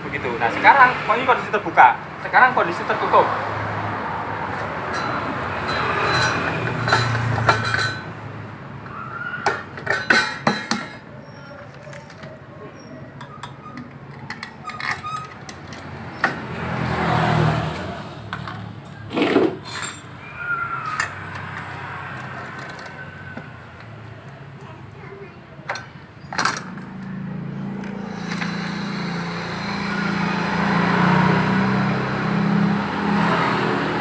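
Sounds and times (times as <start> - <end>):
wrench clinking against bolts: 4.9 - 8.1.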